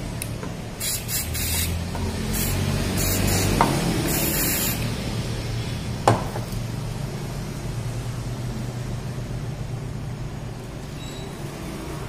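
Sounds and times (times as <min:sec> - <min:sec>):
aerosol spray hissing: 0:00.8 - 0:04.9.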